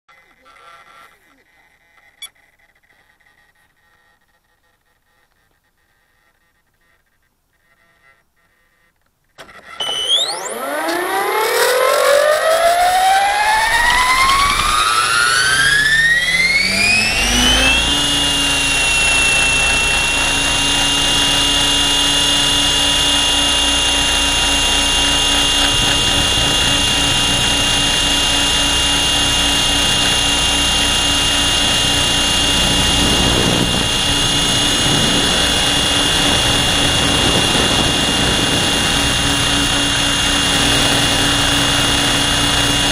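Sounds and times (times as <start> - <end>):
model helicopter rotor whine: 9.4 - 42.9.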